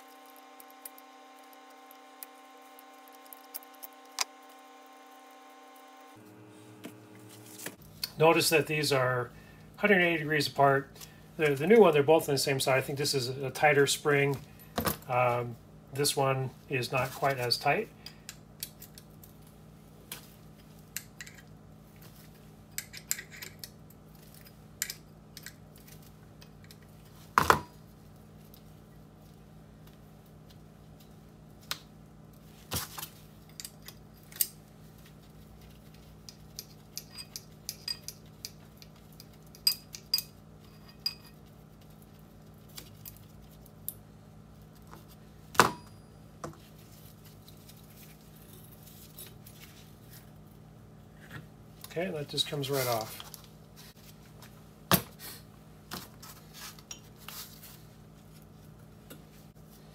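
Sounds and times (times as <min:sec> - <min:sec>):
metal tools clinking on workbench: 0:36.6 - 0:38.6.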